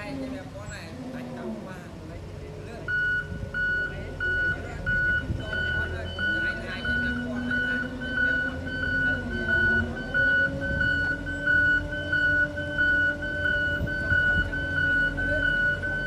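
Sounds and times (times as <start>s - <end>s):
roller engine running: 0.0s - 16.0s
reversing alarm beeping: 2.8s - 16.0s.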